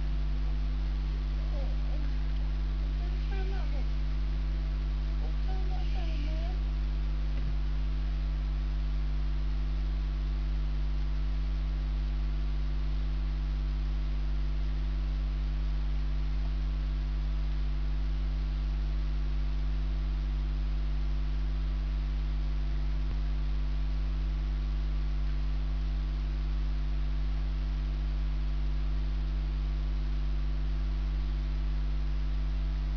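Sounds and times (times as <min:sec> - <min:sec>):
electrical mains hum: 0:00.0 - 0:32.9.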